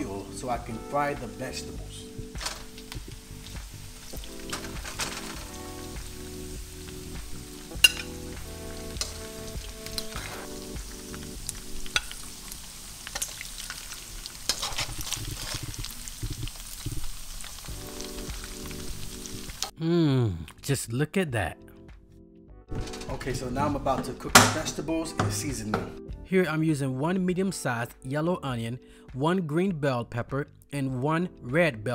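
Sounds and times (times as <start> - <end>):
meat sizzling in fat: 0.0 - 19.8
spoon scraping a pan: 14.4 - 15.7.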